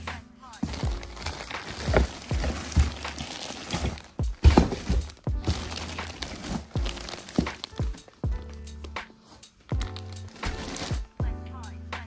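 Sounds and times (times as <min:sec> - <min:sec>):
parts thumping against cardboard box: 0:00.6 - 0:08.1
plastic bags crinkling: 0:00.6 - 0:11.1.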